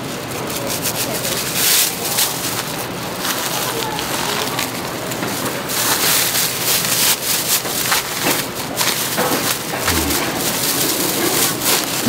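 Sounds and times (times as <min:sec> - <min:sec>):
plastic bag rustling and crinkling: 0:00.7 - 0:12.0.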